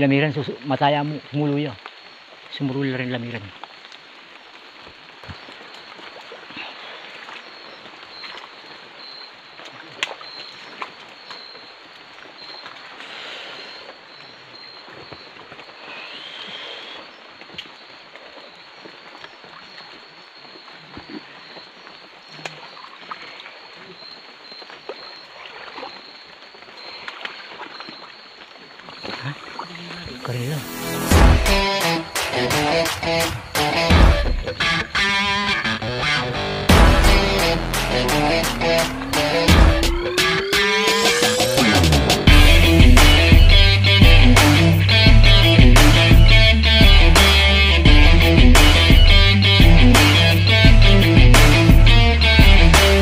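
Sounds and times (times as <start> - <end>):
leaves and branches rustling: 0.0 - 31.0
night forest ambience hiss: 0.0 - 33.9.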